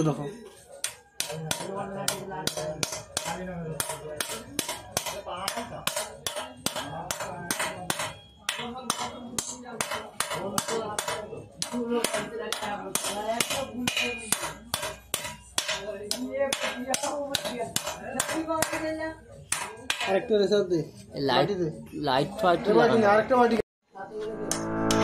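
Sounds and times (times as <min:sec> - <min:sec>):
hammer tapping on metal: 0:00.8 - 0:20.2.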